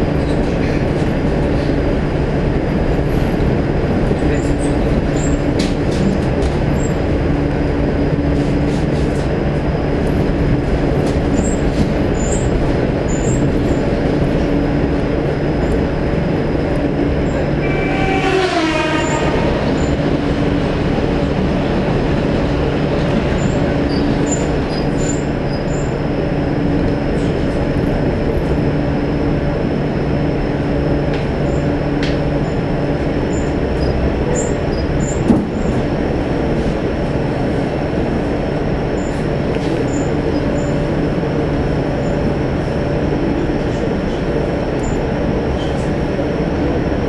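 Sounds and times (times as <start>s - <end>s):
train wheels rumbling on rail: 0.0s - 47.0s
train motor whine: 4.6s - 36.9s.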